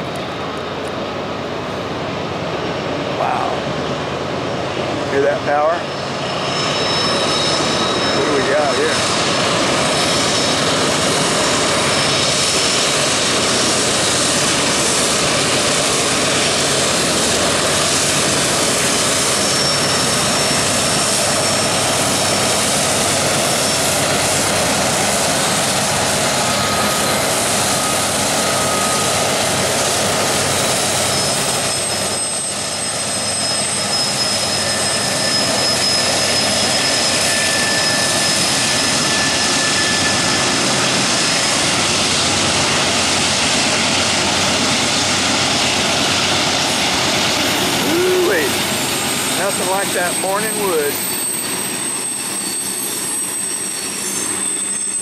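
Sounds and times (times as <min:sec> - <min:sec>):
train rumbling past: 0:00.0 - 0:55.0
high-pitched wheel squeals: 0:05.6 - 0:12.8, 0:18.3 - 0:24.2, 0:30.4 - 0:41.6, 0:46.8 - 0:55.0.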